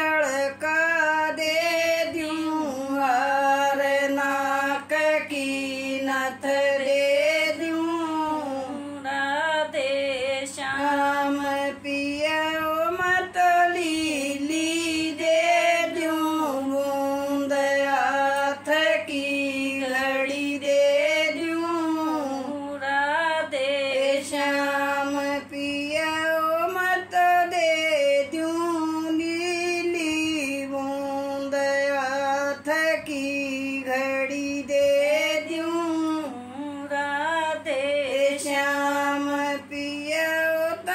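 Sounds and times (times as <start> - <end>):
woman singing unaccompanied: 0.0 - 40.9.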